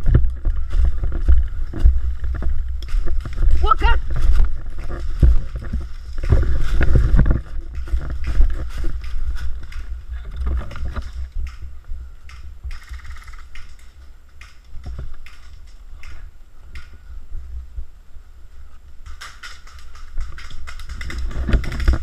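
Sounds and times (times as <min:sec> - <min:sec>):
footsteps crunching dry leaves: 0:00.0 - 0:10.2.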